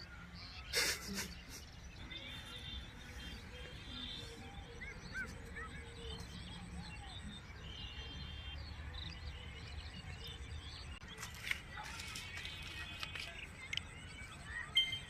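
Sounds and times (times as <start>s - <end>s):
birds chirping and trilling: 0.0s - 15.0s.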